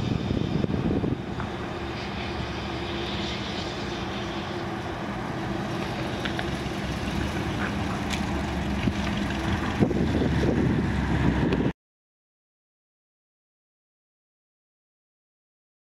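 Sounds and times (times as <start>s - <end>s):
car engine driving by: 0.8s - 11.7s.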